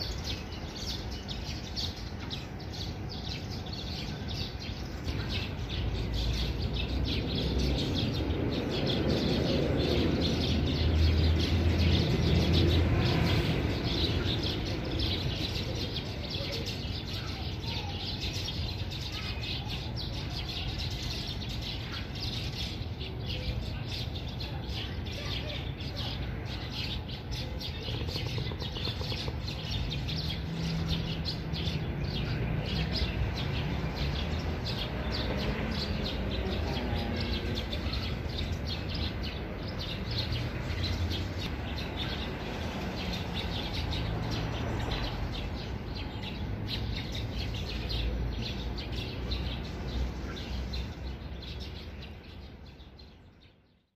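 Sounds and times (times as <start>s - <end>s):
birds chirping: 0.0s - 53.9s.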